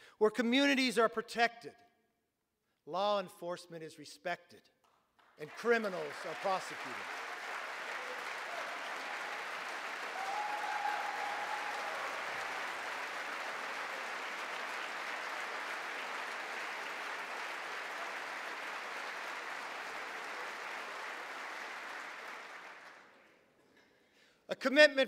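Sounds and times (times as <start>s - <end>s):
crowd applauding: 5.4s - 23.3s.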